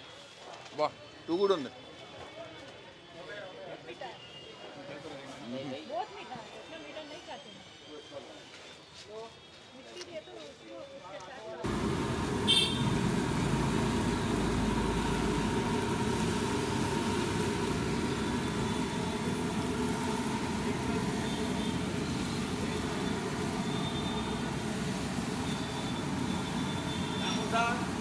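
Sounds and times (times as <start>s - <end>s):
batter deep-frying sizzle: 11.6s - 28.0s.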